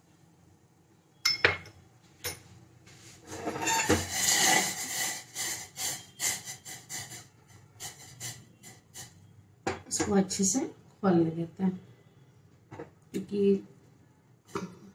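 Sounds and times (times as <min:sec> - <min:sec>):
metal utensils scraping in a mortar: 0:03.3 - 0:07.2.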